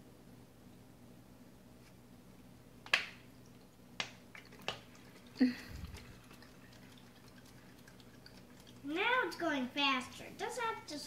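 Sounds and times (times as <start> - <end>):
water dripping in plastic bottles: 2.9 - 9.7.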